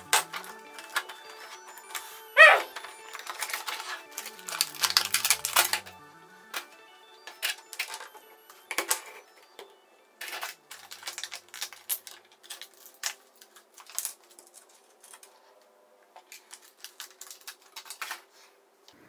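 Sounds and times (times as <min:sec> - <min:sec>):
plastic bag crinkling: 0:00.0 - 0:06.0, 0:10.2 - 0:15.3, 0:16.3 - 0:18.4.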